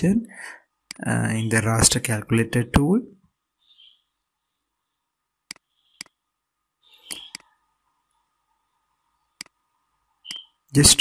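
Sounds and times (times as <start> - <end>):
faint room hiss: 0.0 - 11.0
computer mouse clicks: 5.5 - 6.2, 7.1 - 7.5, 9.4 - 9.6.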